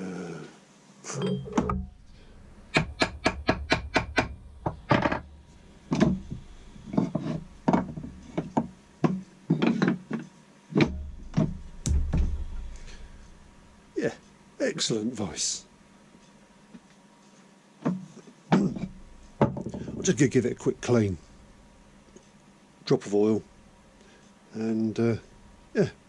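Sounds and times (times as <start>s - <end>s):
wooden blocks knocking on iron: 2.7s - 5.3s, 5.9s - 10.0s, 10.8s - 13.0s, 18.6s - 20.0s.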